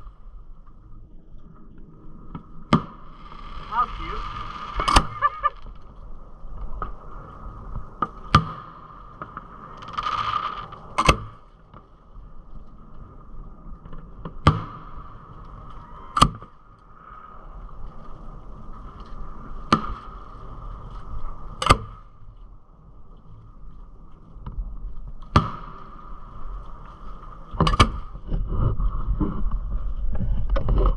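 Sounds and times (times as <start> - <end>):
fireworks exploding: 2.8 - 5.9, 8.2 - 11.0
firework hiss: 3.0 - 11.1.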